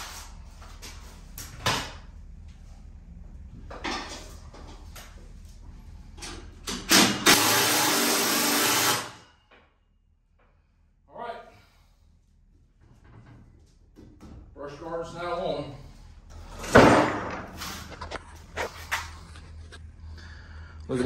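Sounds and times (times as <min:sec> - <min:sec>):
cordless power driver running: 0:06.9 - 0:09.2.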